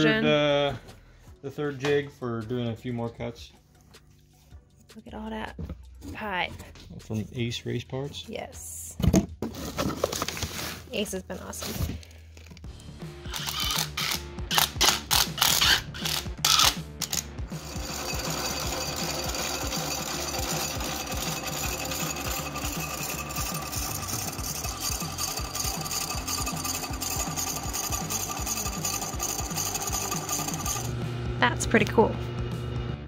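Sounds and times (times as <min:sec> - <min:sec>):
hole saw cutting steel pipe: 0:13.3 - 0:31.0.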